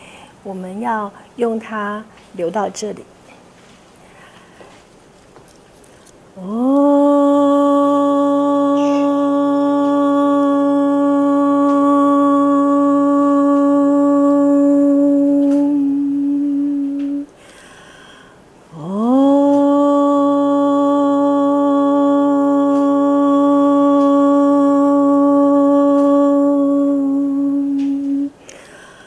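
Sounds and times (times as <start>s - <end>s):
breath: 0.0s - 0.4s, 4.0s - 4.7s, 17.4s - 18.5s, 28.4s - 29.0s
person humming: 6.4s - 18.1s, 18.7s - 29.0s.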